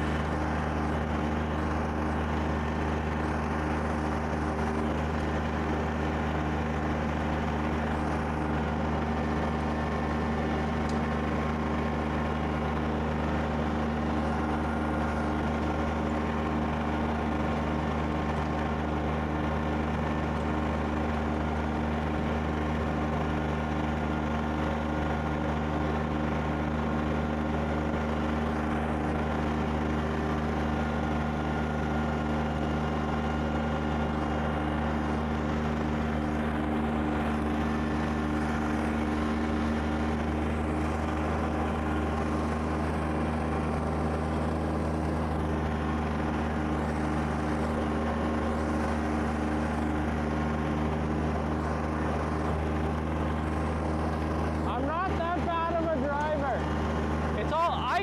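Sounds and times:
snow blower throwing snow: 0.0 - 58.0
tractor diesel engine drone: 0.0 - 58.0.

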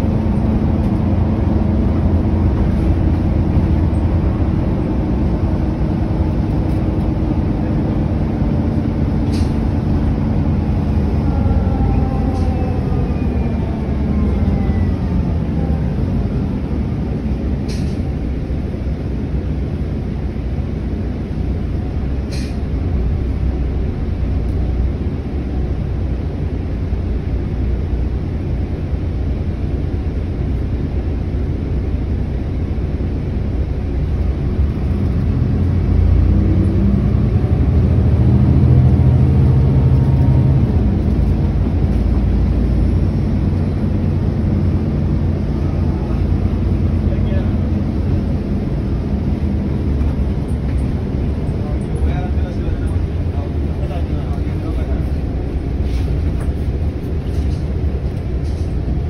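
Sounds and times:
bus engine rumble: 0.0 - 59.0.

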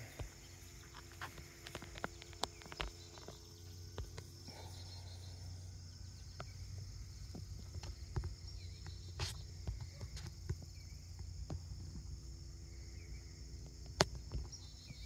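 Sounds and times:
light clicks and rustles: 0.0 - 4.8
insects chirring: 0.0 - 15.0
low steady hum: 0.0 - 15.0.

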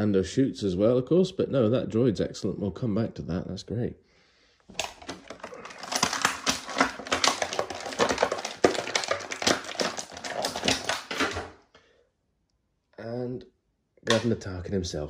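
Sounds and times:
plastic packaging crinkling: 4.7 - 11.6.

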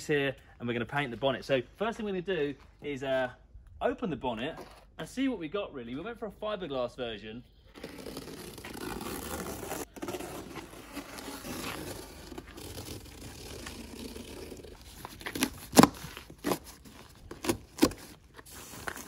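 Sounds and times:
cardboard and tape ripping: 7.8 - 19.0
cardboard scraping and rustling: 7.8 - 19.0.

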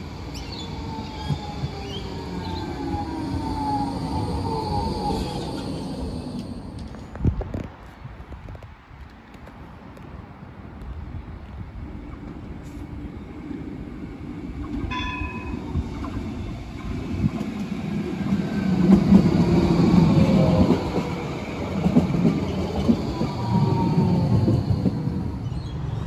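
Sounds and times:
tram wheels rumbling on rails: 0.0 - 26.0.

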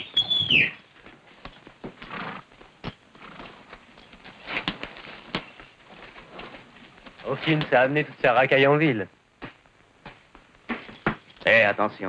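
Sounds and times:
rustle of tack being handled: 0.9 - 7.7.

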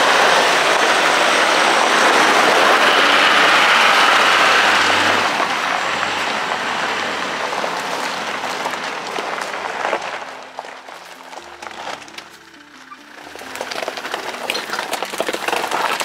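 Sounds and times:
car driving: 0.0 - 16.0.

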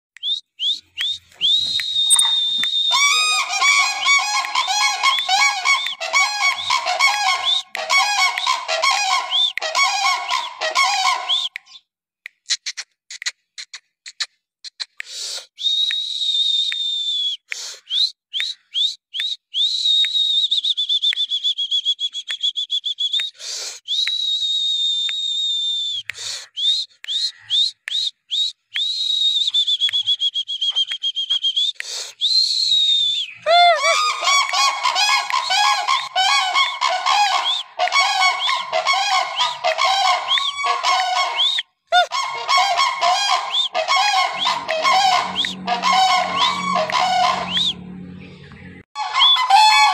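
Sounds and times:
high wavering whistle: 0.2 - 11.8, 15.6 - 49.9
rising chirps and clicks: 0.2 - 11.9, 42.8 - 49.4
cranes honking: 2.3 - 11.5, 33.8 - 41.5, 42.1 - 49.9.

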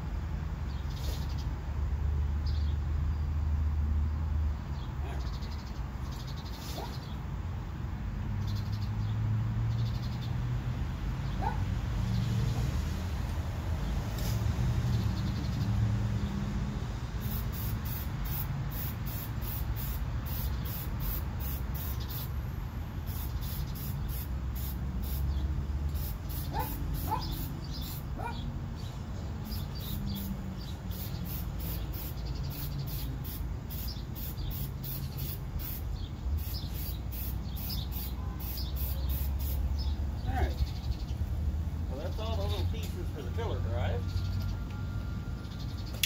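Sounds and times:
spray can ball rattling: 17.2 - 22.3, 23.1 - 25.2, 25.9 - 27.5, 30.9 - 35.8
bird chirps: 23.0 - 41.2.

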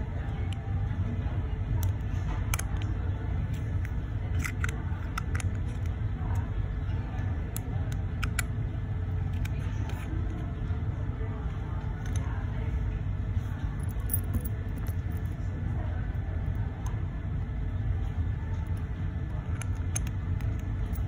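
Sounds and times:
low background rumble: 0.0 - 21.0
watch case clicks and taps: 3.6 - 5.9.

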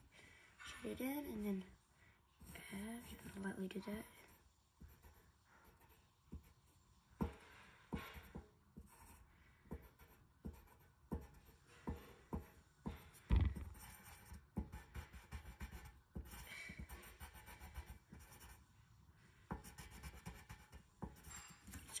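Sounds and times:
pencil scratching on paper: 2.4 - 18.7, 19.5 - 22.0
low thump: 13.3 - 13.7.

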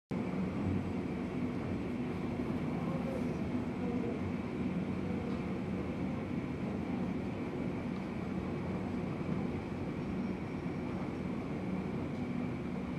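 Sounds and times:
parked jet airliner hum: 0.1 - 12.9.

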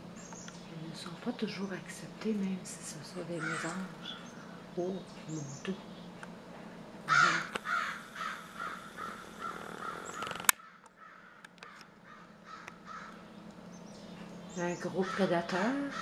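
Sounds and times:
crow cawing: 3.4 - 4.1, 7.1 - 13.3, 15.0 - 16.0.

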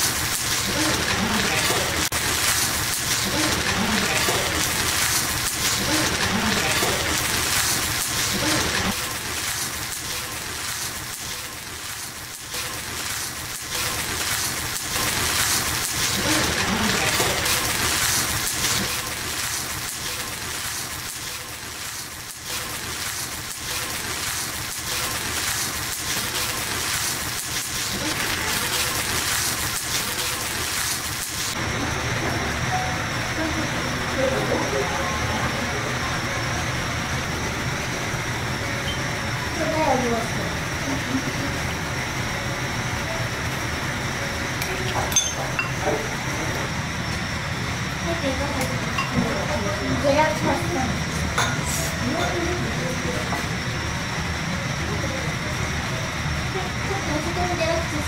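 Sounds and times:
rice sizzling in stone bowl: 0.0 - 58.0
faint voices talking: 31.7 - 58.0.

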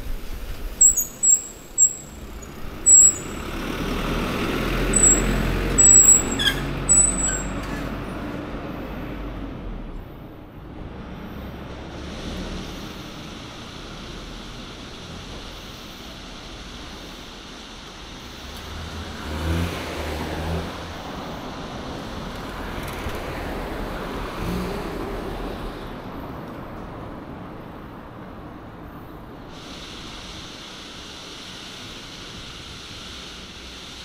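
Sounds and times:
vehicle passing: 0.0 - 14.6, 18.2 - 29.0
street traffic hiss: 0.0 - 34.0
bicycle brakes squealing: 0.7 - 3.6, 4.9 - 7.9.

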